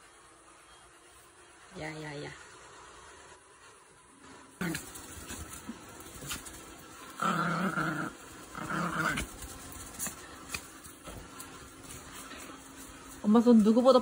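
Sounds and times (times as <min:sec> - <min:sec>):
small dog growling: 0:04.6 - 0:11.2.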